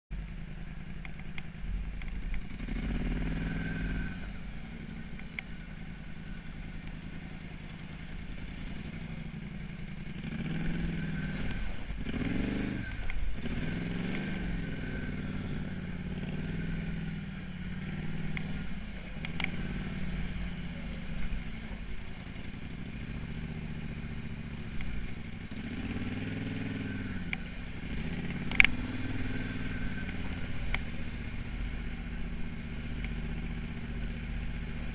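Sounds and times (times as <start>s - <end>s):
atv engine revving: 0.3s - 34.9s.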